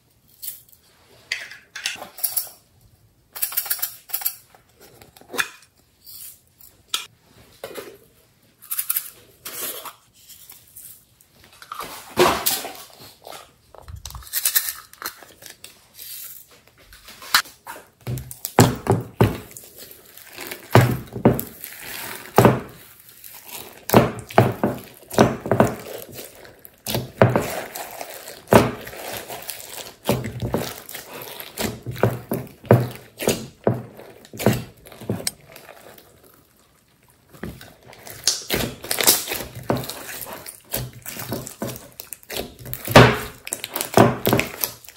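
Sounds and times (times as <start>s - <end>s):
slime squelching: 17.6s - 44.9s.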